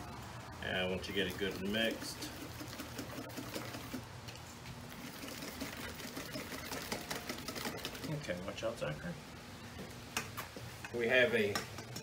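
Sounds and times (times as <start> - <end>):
utensil scraping metal bowl: 5.0 - 8.4.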